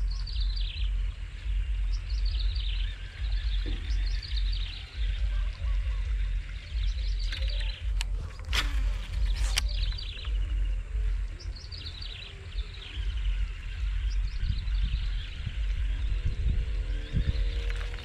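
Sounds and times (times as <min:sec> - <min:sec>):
low outdoor rumble: 0:00.0 - 0:18.0
small birds chirping: 0:00.0 - 0:18.0
sharp clicks: 0:07.2 - 0:10.5.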